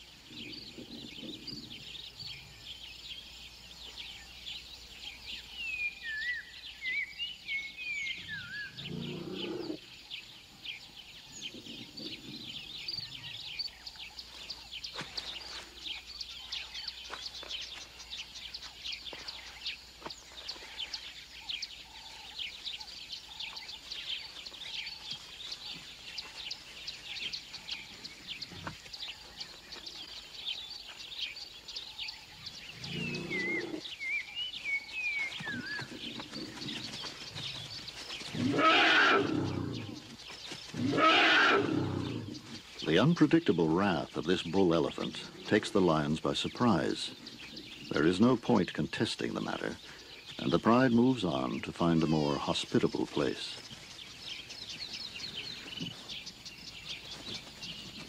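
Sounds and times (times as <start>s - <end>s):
wavering whistled bird calls: 5.6s - 9.7s
low animal calls: 8.0s - 9.9s, 32.4s - 34.0s, 35.3s - 43.0s.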